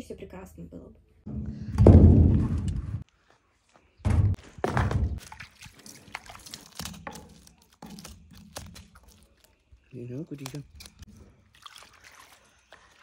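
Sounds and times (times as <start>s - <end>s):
heavy thunks: 1.3s - 3.0s.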